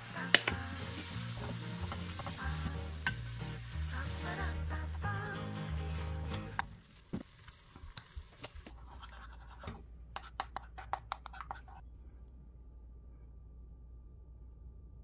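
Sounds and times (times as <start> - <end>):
faint steady hum: 8.7 - 15.0.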